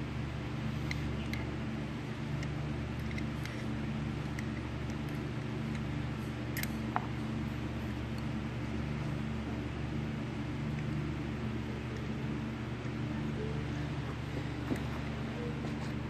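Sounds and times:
steady low hum: 0.0s - 16.0s
small metal parts clicking: 2.4s - 5.8s.

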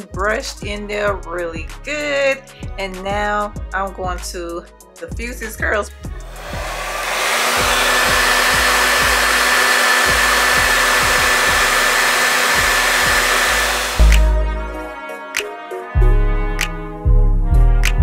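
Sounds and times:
hair dryer running: 6.2s - 14.4s.

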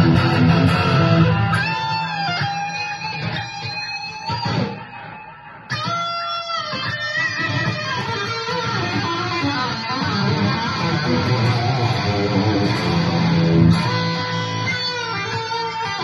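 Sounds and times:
electric guitar picked notes and chords: 0.0s - 16.0s.

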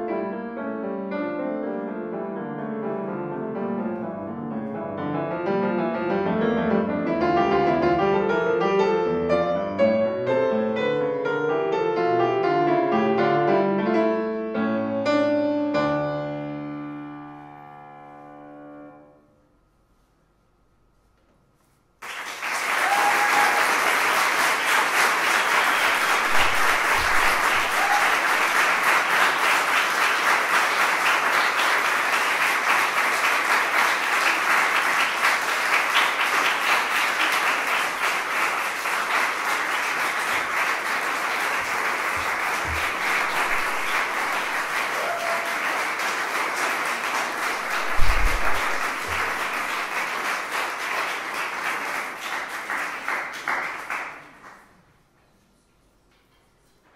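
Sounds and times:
audience applauding: 22.0s - 54.8s.

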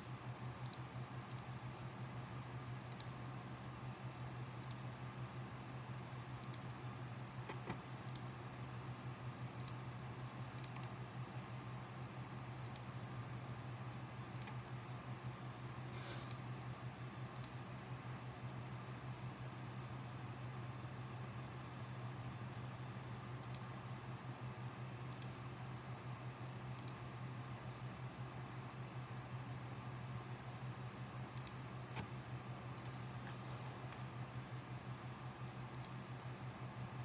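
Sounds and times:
steady low hum: 0.0s - 37.0s
computer mouse clicks: 0.6s - 1.6s, 2.9s - 3.2s, 4.6s - 4.9s, 6.4s - 6.7s, 7.5s - 8.3s, 9.6s - 9.8s, 10.6s - 11.0s, 12.6s - 12.9s, 14.3s - 14.6s, 16.1s - 16.4s, 17.3s - 17.6s, 23.4s - 23.7s, 25.1s - 25.4s, 26.8s - 27.0s, 31.3s - 32.1s, 32.8s - 34.0s, 35.7s - 36.0s.

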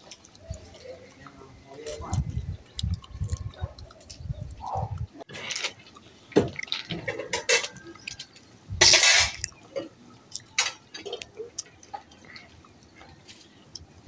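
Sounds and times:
teeth chewing wooden stick: 0.1s - 6.9s, 10.3s - 13.9s.

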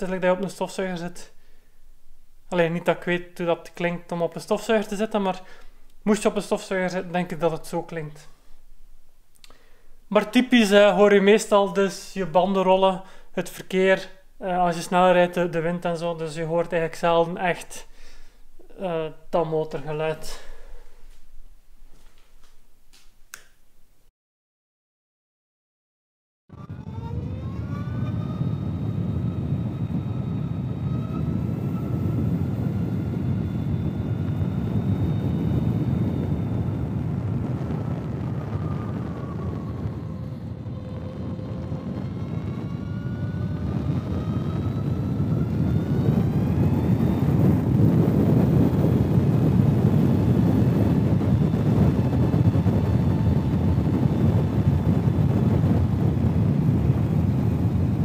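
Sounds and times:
electric motor whine: 26.5s - 58.0s
tyre and wind noise: 27.2s - 58.0s.

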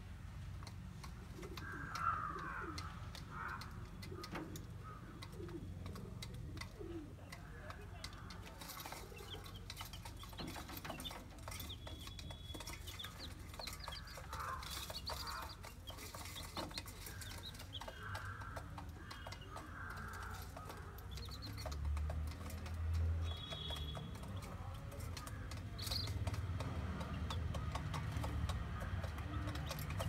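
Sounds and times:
chicks and quail peeping: 1.0s - 30.0s.

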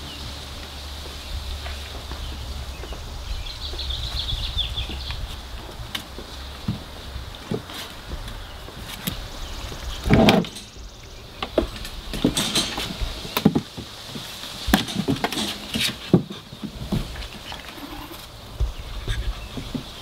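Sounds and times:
puppy claws clicking and scraping: 7.4s - 10.8s, 11.6s - 20.0s.

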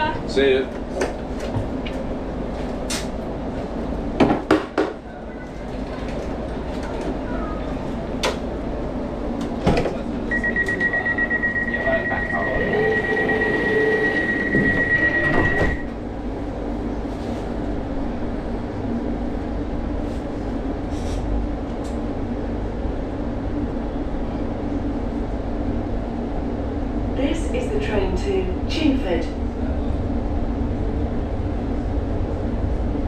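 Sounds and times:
train low hum: 0.0s - 33.0s
door warning beeps: 10.3s - 15.9s.

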